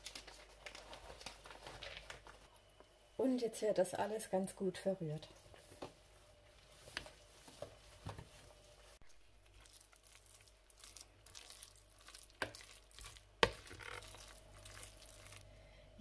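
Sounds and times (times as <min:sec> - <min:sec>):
spoon stirring thick batter: 0:09.5 - 0:15.5.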